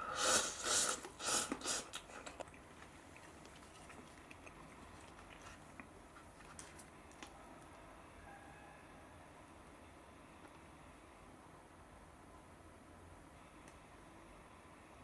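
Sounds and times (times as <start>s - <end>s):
noodles slurped: 0.0s - 5.9s
faint chewing: 0.5s - 7.4s.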